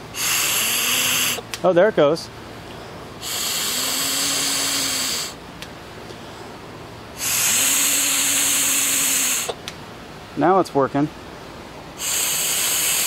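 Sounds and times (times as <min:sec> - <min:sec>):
breath blowing through turbine: 0:00.0 - 0:01.4, 0:03.2 - 0:05.4, 0:07.2 - 0:09.6, 0:12.0 - 0:13.0
low turbine hum: 0:00.0 - 0:13.0.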